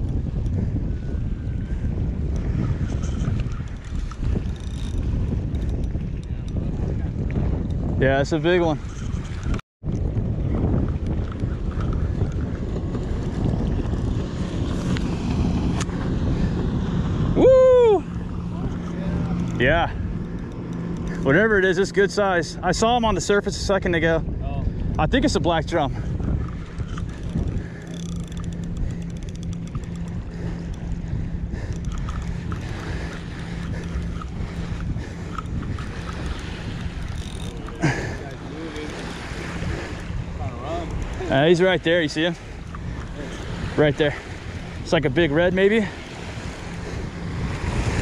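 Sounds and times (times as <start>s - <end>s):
fishing reel gear hum: 0.0s - 48.0s
motorboat droning: 0.0s - 48.0s
wind buffeting microphone: 0.0s - 48.0s
person shouting: 17.4s - 18.0s
faint fine ticking: 26.4s - 38.9s.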